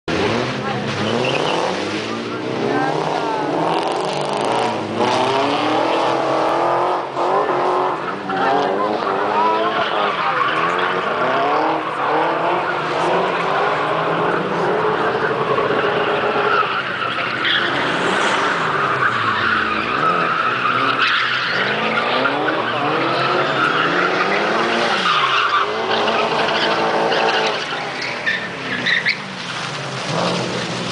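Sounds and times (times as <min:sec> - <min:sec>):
car engines revving hard: 0:00.0 - 0:30.9
tyres squealing: 0:07.8 - 0:29.4.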